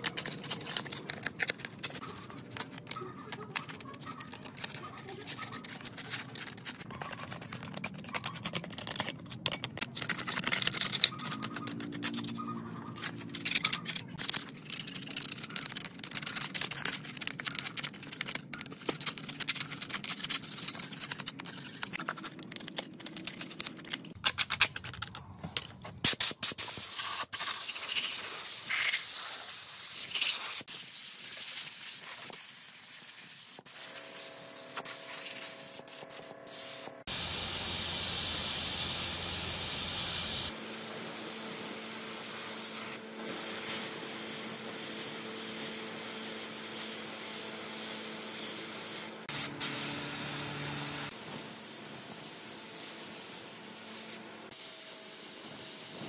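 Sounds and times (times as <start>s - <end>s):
tool scraping engine casing: 0.0s - 24.0s.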